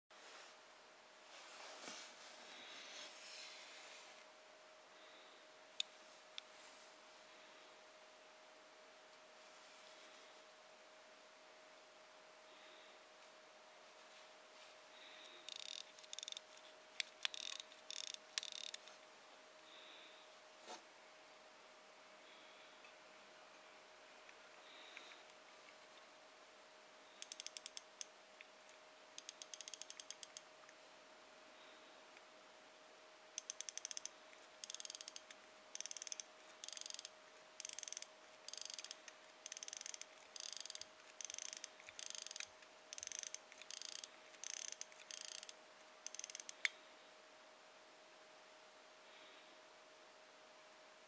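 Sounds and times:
watch winding ratchet clicks: 15.5s - 18.9s, 27.2s - 28.1s, 29.2s - 30.5s, 33.4s - 46.7s.

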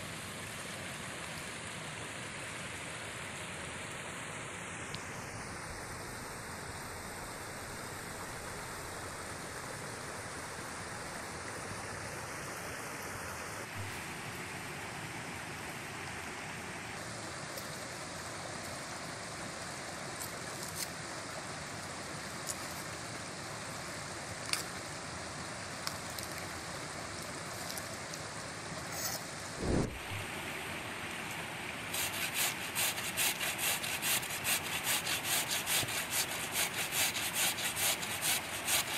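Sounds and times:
stream rushing: 0.0s - 38.9s
potato grating on metal grater: 31.9s - 38.9s.

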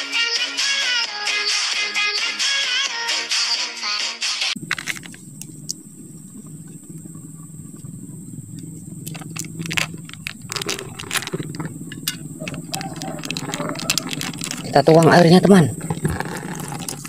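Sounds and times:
plastic wrap crinkling: 4.6s - 5.7s, 9.0s - 15.2s, 15.8s - 17.0s
low rumble: 4.6s - 17.0s.

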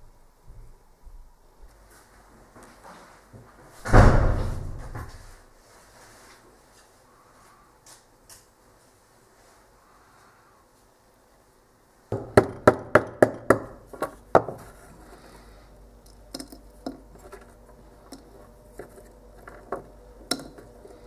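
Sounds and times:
small hammer knocking: 12.1s - 14.7s, 16.3s - 21.0s.

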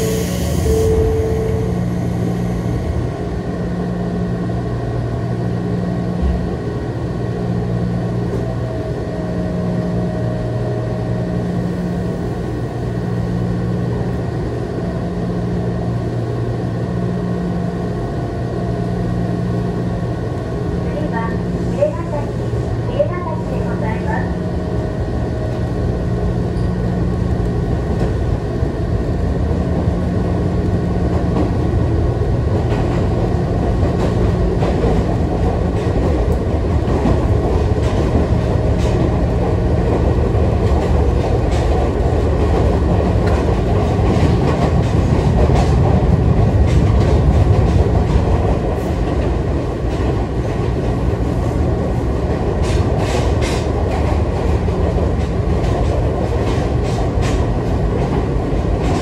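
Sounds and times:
rail-joint clicks: 32.6s - 51.0s, 52.2s - 59.0s.

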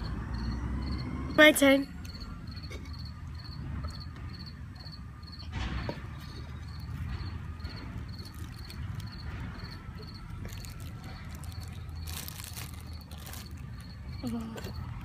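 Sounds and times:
cricket chirping: 0.0s - 15.0s
plastic bag crinkling: 8.1s - 14.7s.

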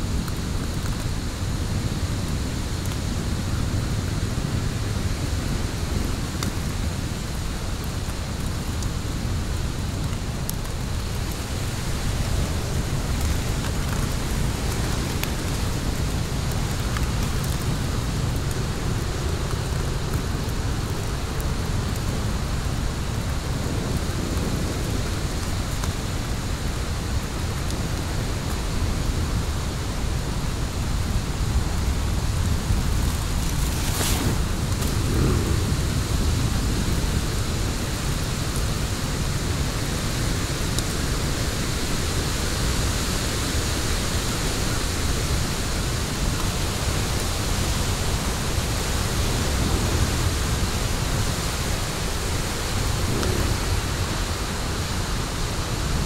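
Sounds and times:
fire crackles and pops: 6.0s - 29.4s, 30.1s - 39.6s
fire rushing: 30.1s - 42.4s, 44.8s - 56.0s.

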